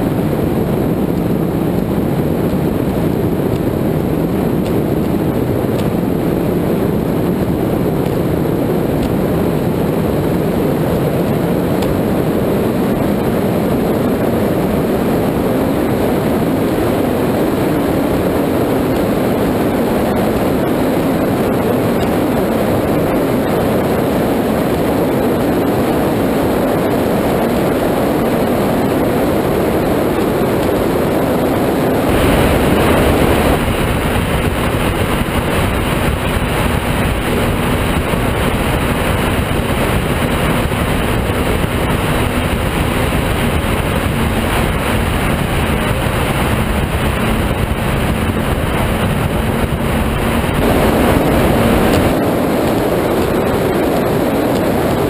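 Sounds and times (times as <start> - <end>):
boat engine drone: 0.0 - 55.0
rush of wind and water: 0.0 - 55.0
steady low hum: 0.0 - 55.0.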